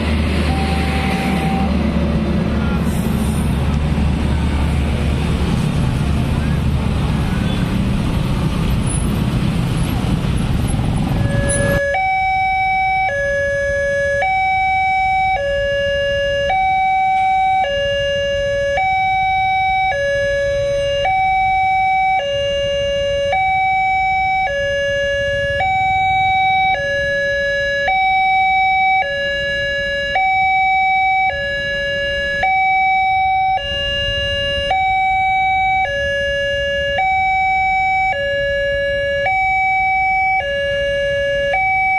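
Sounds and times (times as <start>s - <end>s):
street traffic with motorbikes: 0.0s - 41.9s
two-tone level-crossing alarm: 0.5s - 1.8s, 11.2s - 41.9s.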